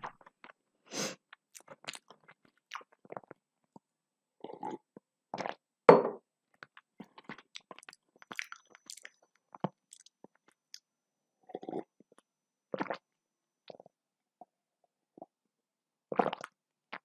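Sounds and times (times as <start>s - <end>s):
chewing clicks and smacks: 6.6s - 10.6s.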